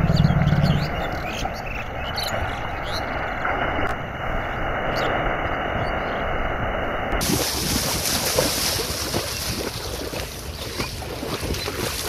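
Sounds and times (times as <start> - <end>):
wind rumbling on microphone: 0.0 - 12.0
water splashing: 7.1 - 12.0.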